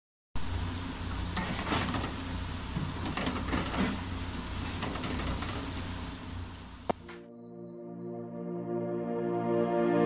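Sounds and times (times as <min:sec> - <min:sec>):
oil sizzling and bubbling: 0:00.4 - 0:07.1.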